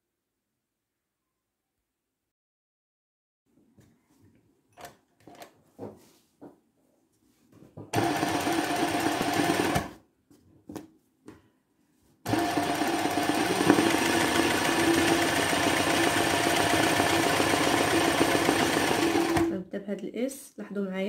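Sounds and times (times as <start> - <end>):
sewing machine running: 8.0 - 9.9, 12.3 - 19.6.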